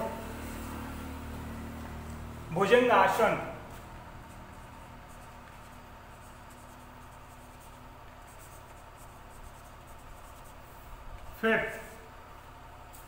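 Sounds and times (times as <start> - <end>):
low room hum: 0.0 - 13.0
marker pen scratching on board: 3.7 - 11.4.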